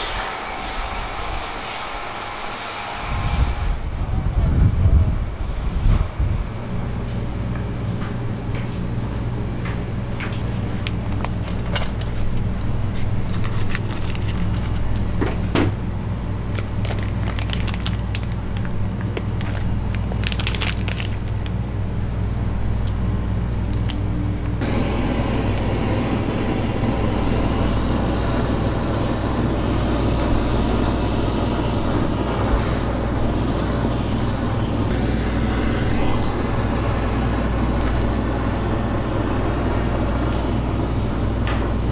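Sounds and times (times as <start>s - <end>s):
gas blowtorch hissing: 0.0s - 4.1s, 24.6s - 41.9s
low machine hum: 0.0s - 41.9s
plastic packaging crinkling: 13.2s - 15.1s, 16.5s - 21.6s, 23.4s - 24.0s.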